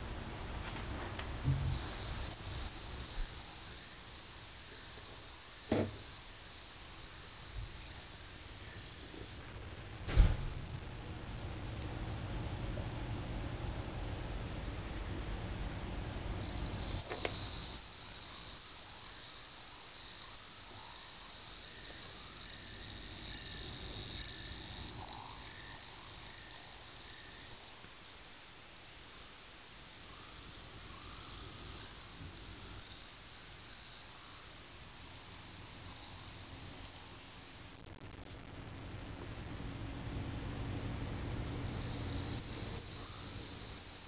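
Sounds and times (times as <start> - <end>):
cricket trilling: 1.2 - 9.4, 16.4 - 37.9, 41.6 - 44.0.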